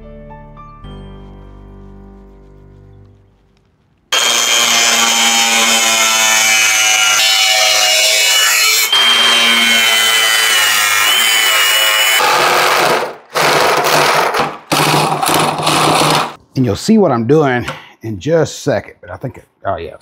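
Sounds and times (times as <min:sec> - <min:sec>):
angle grinder cutting metal: 0:04.1 - 0:16.4.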